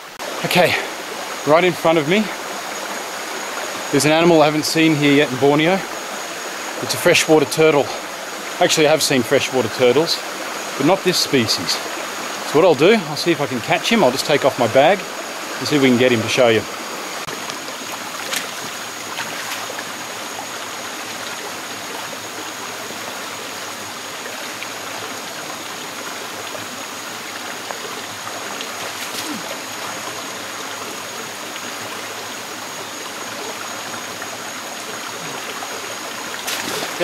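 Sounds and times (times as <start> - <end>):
creek flowing over rocks: 0.0 - 37.0
splashes among stones: 17.9 - 20.0, 28.7 - 29.6, 36.4 - 37.0.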